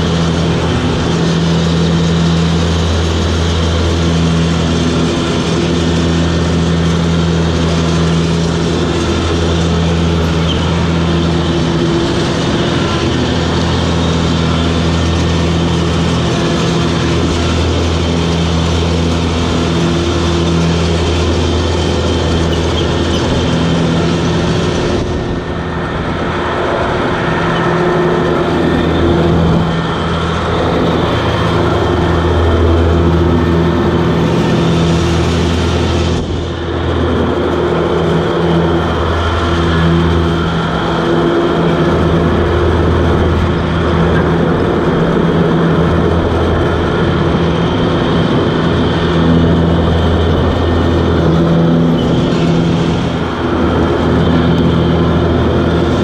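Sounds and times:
ride-on mower running: 0:00.0 - 0:56.0.

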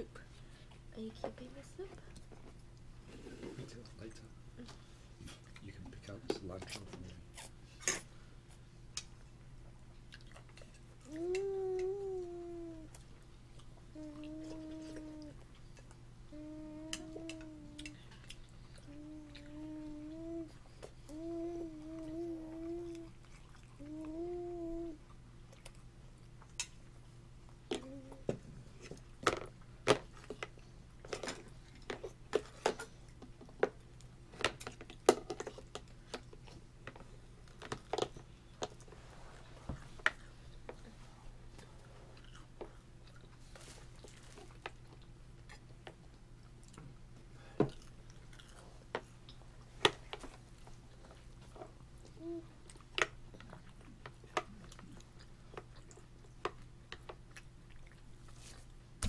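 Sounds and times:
low steady hum: 0:00.0 - 0:59.0
chewing: 0:10.0 - 0:11.9, 0:22.6 - 0:24.3, 0:39.8 - 0:46.9, 0:47.7 - 0:58.8.

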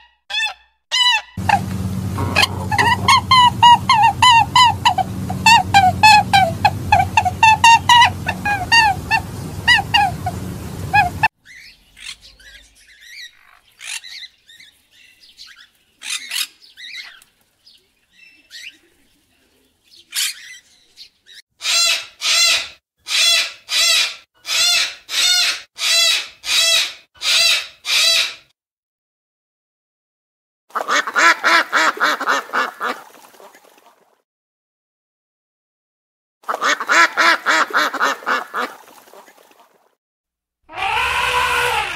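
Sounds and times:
cockatoo calling loudly: 0:00.3 - 0:12.4, 0:21.6 - 0:28.4, 0:40.7 - 0:41.9
duck honking calls: 0:00.4 - 0:11.3, 0:30.8 - 0:33.0, 0:36.5 - 0:38.8, 0:40.7 - 0:41.9
bird chirping: 0:01.4 - 0:21.4.

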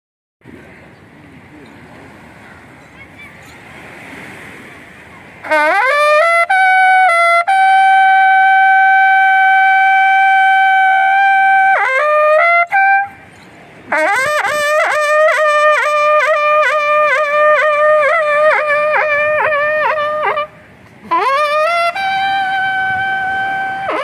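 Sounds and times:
brass horn blown loudly: 0:05.4 - 0:13.2, 0:13.9 - 0:24.0.

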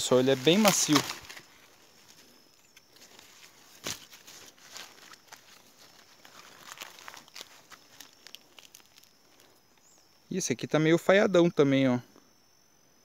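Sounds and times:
leaves and grass rustling: 0:00.0 - 0:10.4.

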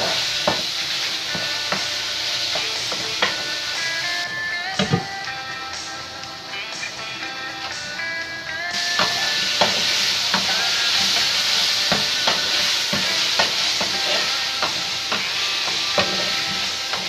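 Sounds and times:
chicken sizzling in oil: 0:00.0 - 0:17.0
wooden spatula knocking pan: 0:09.0 - 0:16.2.

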